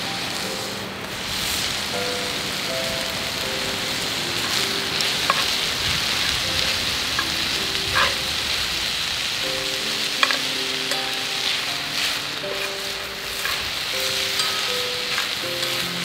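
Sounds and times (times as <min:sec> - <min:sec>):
food sizzling in a frying pan: 0:00.0 - 0:16.0
soft melody: 0:00.0 - 0:16.0
sharp ticks of stirring: 0:04.4 - 0:05.6, 0:07.1 - 0:08.2, 0:09.9 - 0:16.0.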